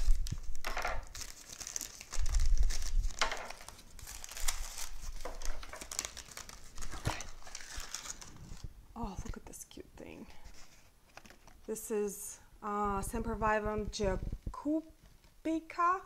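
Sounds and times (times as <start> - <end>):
paper crinkling and tearing: 0.0 - 8.7.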